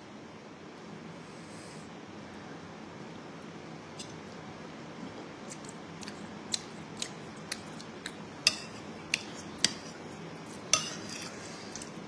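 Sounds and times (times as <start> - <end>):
spoons clinking against ceramic bowl: 8.4 - 9.9, 10.7 - 11.4.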